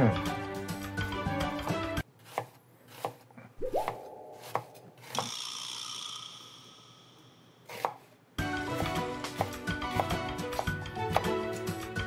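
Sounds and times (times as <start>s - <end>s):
knife chopping on cutting board: 2.2s - 3.3s, 4.3s - 5.3s, 7.7s - 8.1s, 9.2s - 11.4s
rising tone: 3.6s - 7.4s
high ringing sound: 5.2s - 7.6s.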